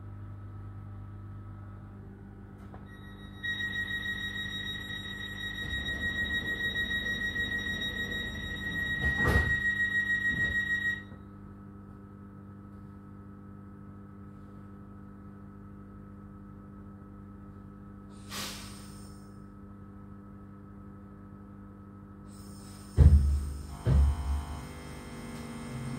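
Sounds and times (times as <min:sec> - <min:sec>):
train electrical hum: 0:00.0 - 0:25.9
train door warning beeps: 0:02.8 - 0:11.2
air hiss: 0:18.1 - 0:19.3, 0:22.3 - 0:23.6
knock: 0:23.0 - 0:24.3.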